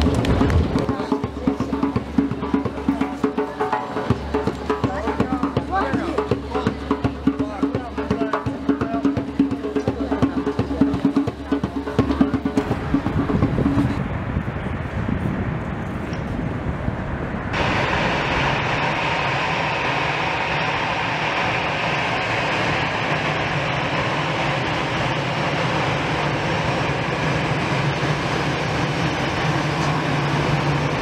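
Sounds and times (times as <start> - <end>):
jet engines roaring: 0.0 - 31.0
low hum: 12.4 - 31.0.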